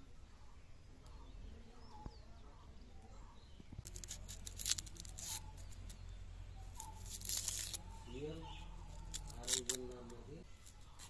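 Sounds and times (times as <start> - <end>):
knife scraping onion skin: 3.8 - 6.0, 6.8 - 7.8, 8.9 - 11.0.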